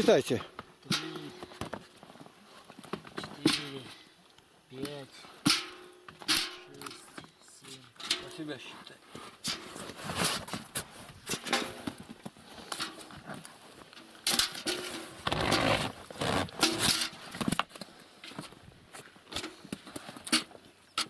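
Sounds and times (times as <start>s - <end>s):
handling rustle: 6.4s - 21.0s.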